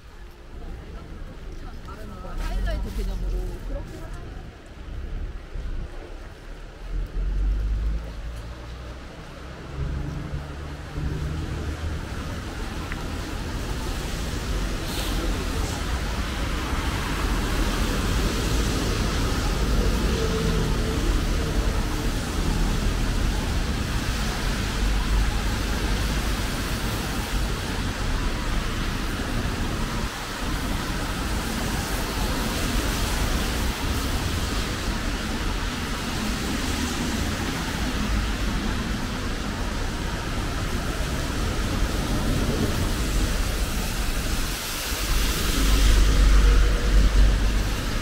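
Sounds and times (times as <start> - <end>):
rain hiss on wet road: 0.0 - 48.0
traffic rumble: 0.0 - 48.0
vehicle approaching: 6.4 - 15.8.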